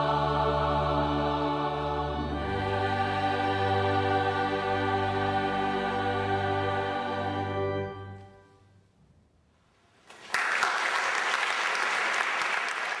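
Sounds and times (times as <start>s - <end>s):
choir and strings chord: 0.0s - 8.6s
audience applause: 10.1s - 13.0s.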